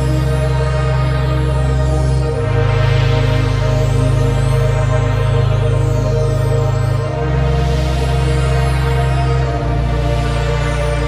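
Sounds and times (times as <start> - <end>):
slow background music: 0.0 - 11.0.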